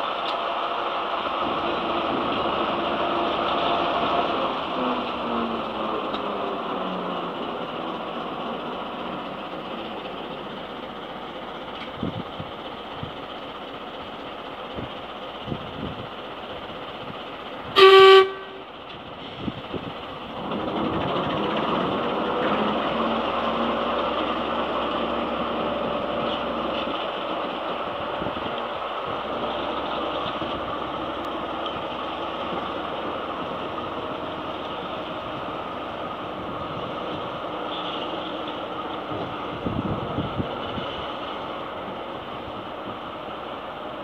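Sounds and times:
diesel engine running: 0:00.0 - 0:44.0
locomotive horn toot: 0:17.8 - 0:18.7, 0:37.6 - 0:38.6.

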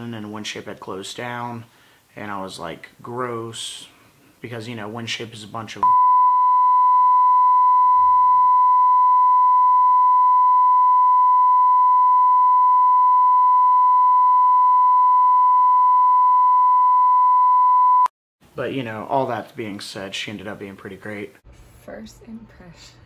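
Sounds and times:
censor bleep tone: 0:05.8 - 0:18.1.

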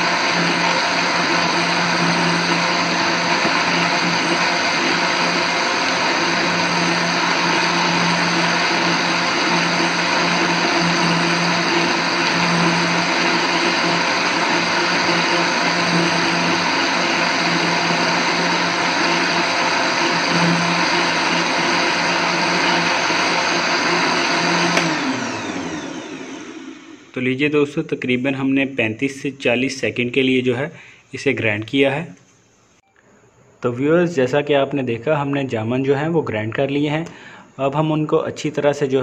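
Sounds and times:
mixer grinder blending ice: 0:00.0 - 0:27.2.

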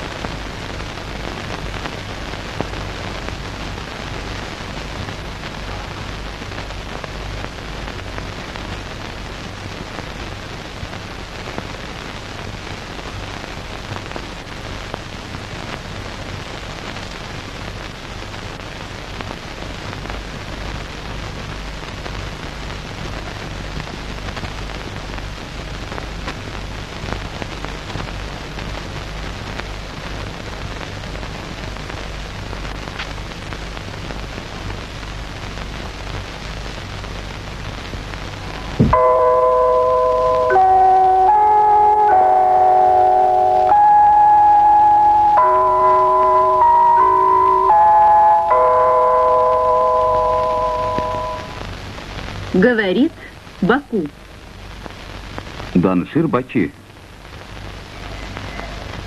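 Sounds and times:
steady rain pattering: 0:00.0 - 0:59.0
low hum: 0:38.4 - 0:53.3.

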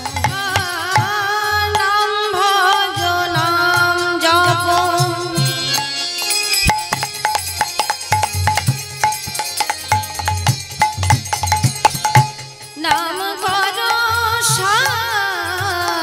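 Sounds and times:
woman singing: 0:00.0 - 0:06.0, 0:12.7 - 0:16.0
hand drum rhythm: 0:00.0 - 0:16.0.

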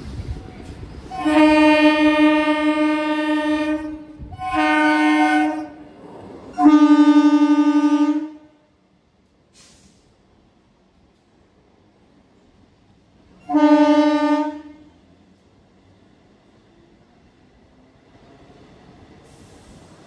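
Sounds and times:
train horn blasts: 0:01.1 - 0:05.8, 0:06.5 - 0:08.7, 0:13.4 - 0:15.0.

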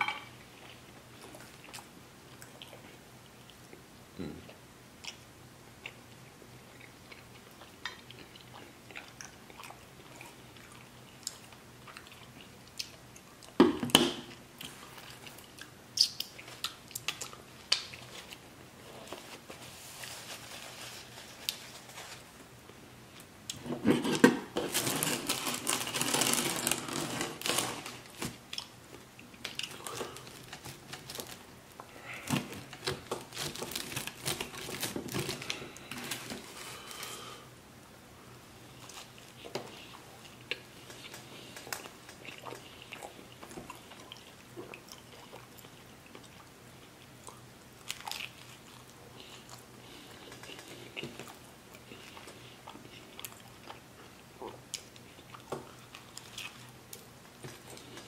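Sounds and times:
rustling and crackling: 0:17.9 - 0:22.5, 0:24.6 - 0:28.4
pizza cutter rolling through crust: 0:24.6 - 0:27.8.

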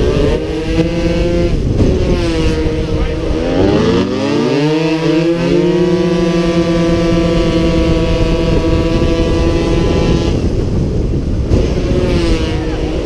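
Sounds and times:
scooter engine at high revs: 0:00.0 - 0:13.0
wind rushing over microphone: 0:00.0 - 0:13.0.

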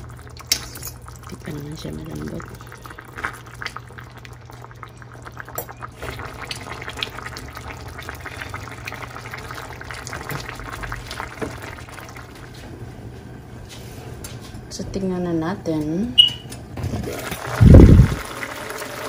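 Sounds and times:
broth simmering in a pan: 0:00.0 - 0:12.8.

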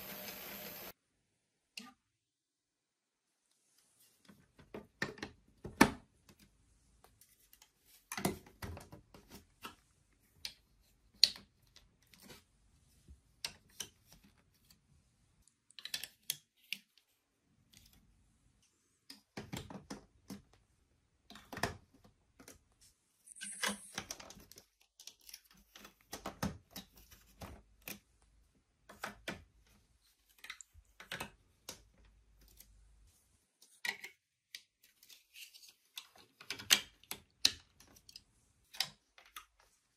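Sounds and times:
plastic blocks clicking together: 0:15.7 - 0:16.8.

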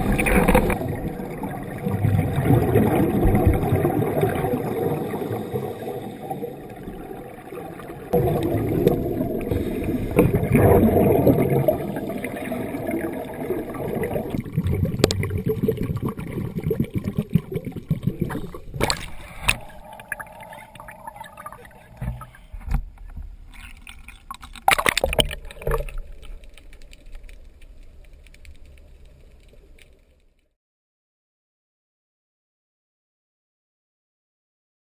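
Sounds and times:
muffled underwater bubbling: 0:00.0 - 0:22.6.

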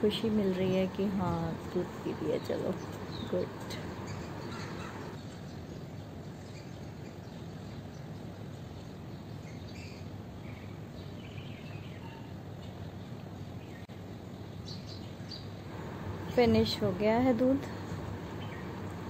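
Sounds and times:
outdoor background noise: 0:00.0 - 0:19.0
faint bird chirps: 0:02.4 - 0:05.7, 0:09.4 - 0:12.4.

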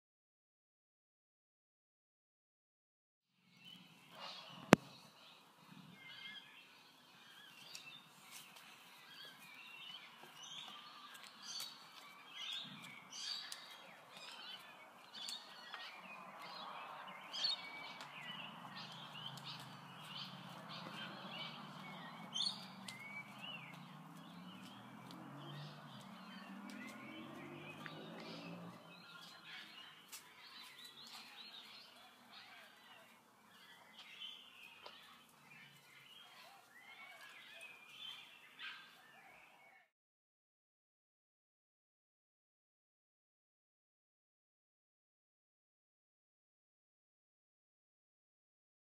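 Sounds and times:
small birds chirping: 0:03.4 - 0:39.9.

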